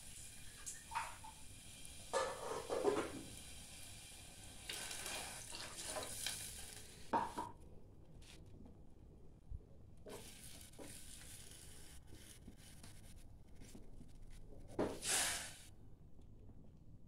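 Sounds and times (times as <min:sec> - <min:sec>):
gas stove hissing: 0:00.0 - 0:07.5, 0:10.1 - 0:12.0, 0:14.9 - 0:15.7
utensil scraping in pot: 0:02.1 - 0:03.2, 0:04.7 - 0:07.0.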